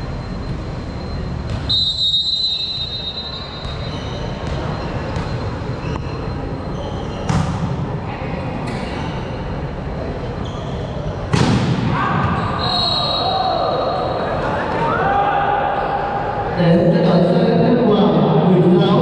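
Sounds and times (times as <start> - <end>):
referee's whistle: 1.6 - 4.3, 12.3 - 13.9
sneakers squeaking on court: 3.0 - 7.8, 10.4 - 11.4, 12.2 - 13.3
volleyball struck sharply: 11.3 - 12.0.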